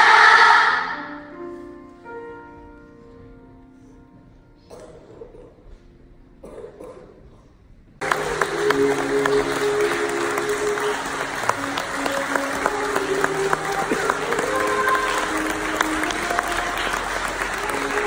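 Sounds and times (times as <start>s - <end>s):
audience applause: 8.0s - 18.0s
music of long held notes: 8.0s - 18.0s.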